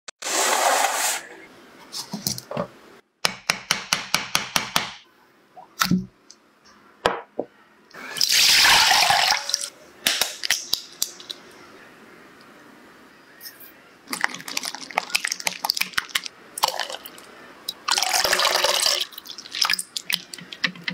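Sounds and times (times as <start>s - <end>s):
water pouring into a bowl: 14.1s - 17.2s, 17.8s - 20.3s.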